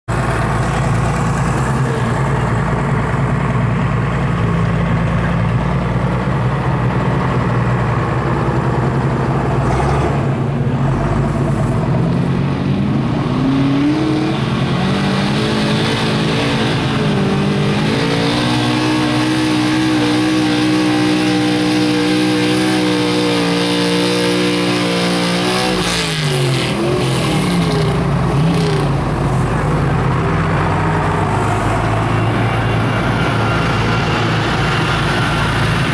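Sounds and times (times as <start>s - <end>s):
truck engine under full load: 0.0s - 35.9s.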